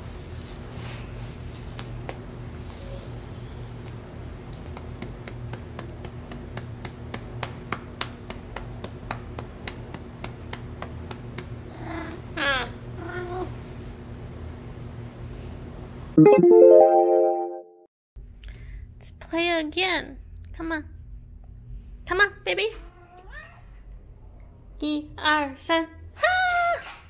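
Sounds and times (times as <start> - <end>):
grooming brush strokes through fur: 0.0 - 4.0.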